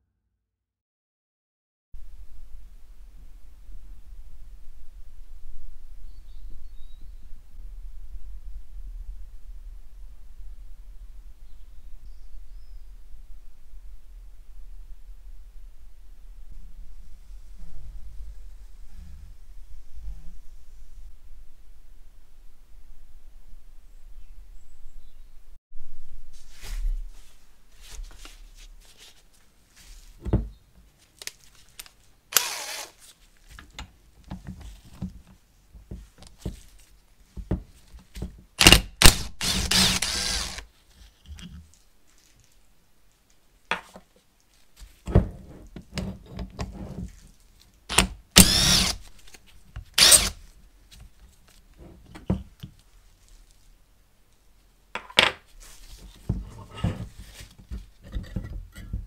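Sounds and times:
cordless power tool running: 0:32.4 - 0:32.9, 0:39.0 - 0:40.6, 0:48.4 - 0:49.0, 0:50.0 - 0:50.4.

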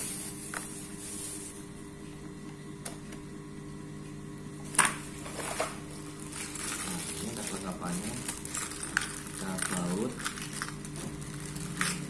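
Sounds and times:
steady low hum: 0:00.0 - 0:12.0
plastic bag and bubble wrap rustling: 0:05.1 - 0:12.0.

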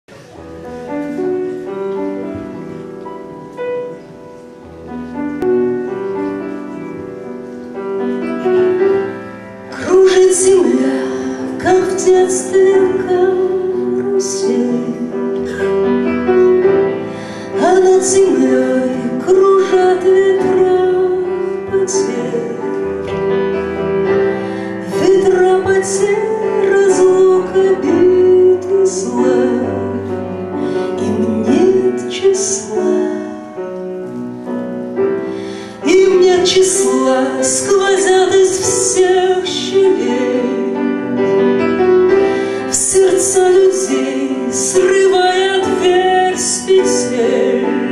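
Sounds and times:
grand piano: 0:00.0 - 0:47.9
woman singing: 0:09.7 - 0:15.8, 0:17.6 - 0:23.1, 0:24.8 - 0:33.6, 0:35.8 - 0:41.0, 0:42.6 - 0:47.9.

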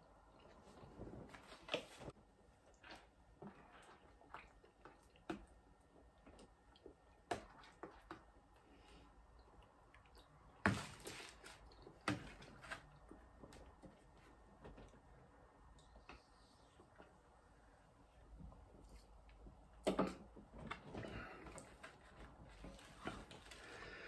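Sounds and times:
chewing: 0:02.6 - 0:07.0.

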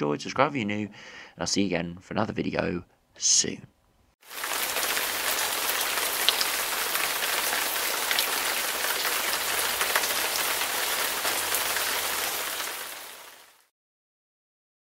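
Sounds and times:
heavy rain falling: 0:04.2 - 0:13.7.

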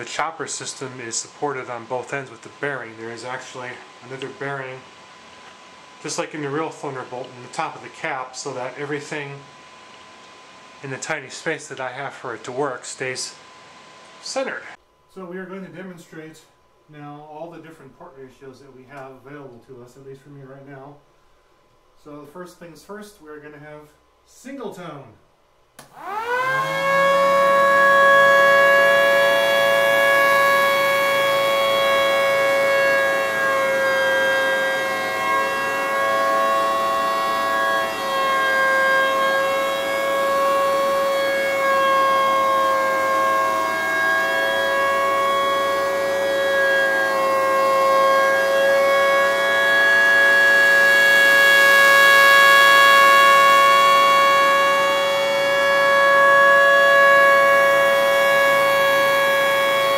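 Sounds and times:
siren tone: 0:25.8 - 0:59.9.

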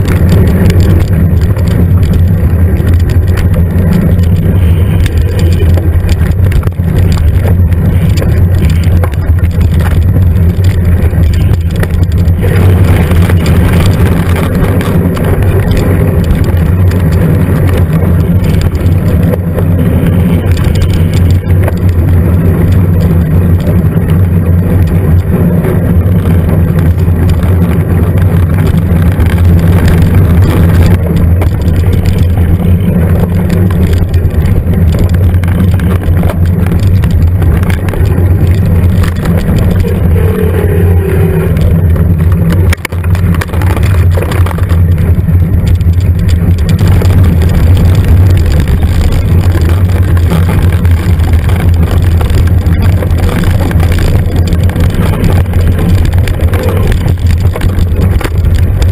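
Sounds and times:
wind and trail vibration rumble: 0:00.0 - 0:58.9.

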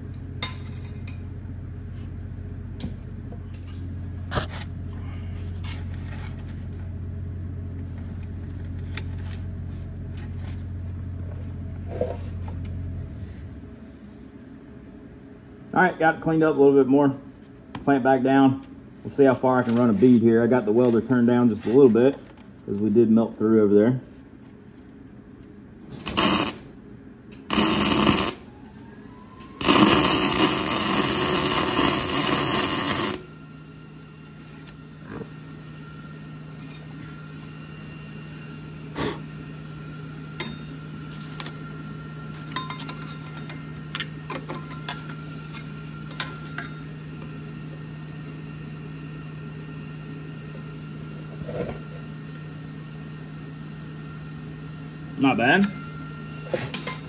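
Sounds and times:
steady low hum: 0:00.0 - 0:57.0
arc welding crackling: 0:26.0 - 0:26.7, 0:27.4 - 0:28.5, 0:29.5 - 0:33.4.

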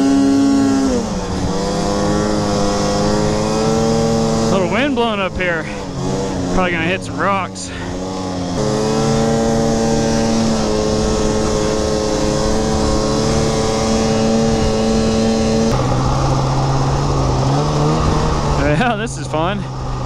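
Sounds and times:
snowmobile engine running: 0:00.0 - 0:20.0.

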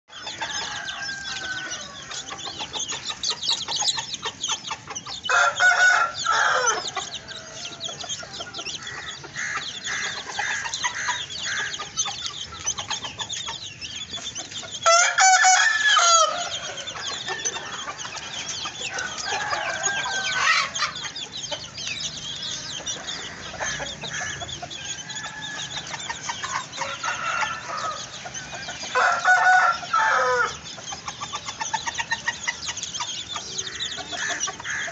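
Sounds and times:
bird calls: 0:00.1 - 0:34.9
chickens clucking: 0:00.1 - 0:34.9
rooster crowing: 0:00.2 - 0:02.4, 0:05.3 - 0:07.9, 0:14.8 - 0:18.0, 0:18.8 - 0:21.0, 0:23.6 - 0:25.9, 0:26.8 - 0:30.6.

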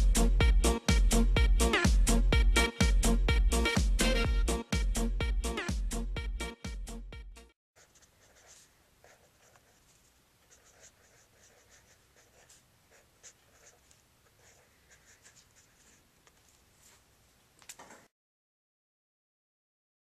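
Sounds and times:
pen scratching on paper: 0:07.8 - 0:17.0.

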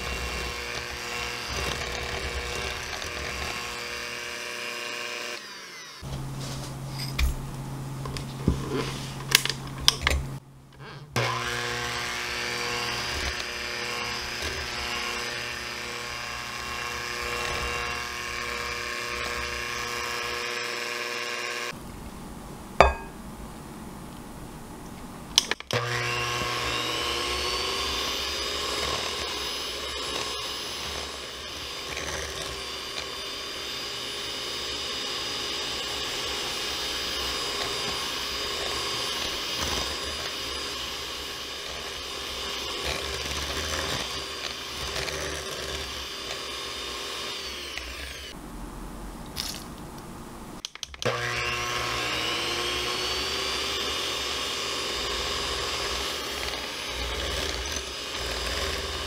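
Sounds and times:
electric hand mixer whining: 0:00.0 - 0:06.2, 0:11.2 - 0:21.8, 0:25.7 - 0:48.4, 0:51.0 - 0:59.0.

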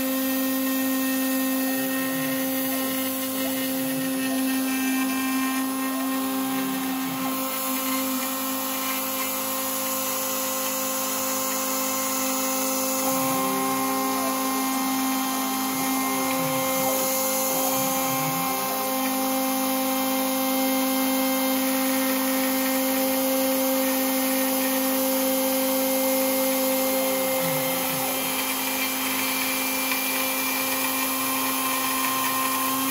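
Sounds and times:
stepper motors sweeping in pitch: 0:00.0 - 0:25.8
spindle whine: 0:00.0 - 0:32.9.

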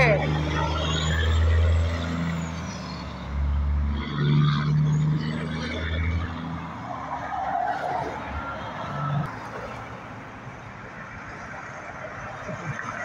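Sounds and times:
truck diesel engine under load: 0:00.0 - 0:06.8
road traffic passing: 0:00.0 - 0:13.0.

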